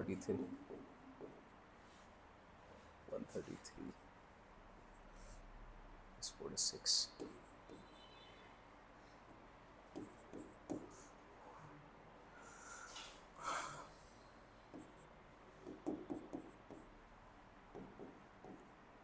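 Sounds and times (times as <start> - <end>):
pen writing on paper: 7.2 - 8.0, 9.9 - 11.0, 14.7 - 16.9, 17.7 - 18.8.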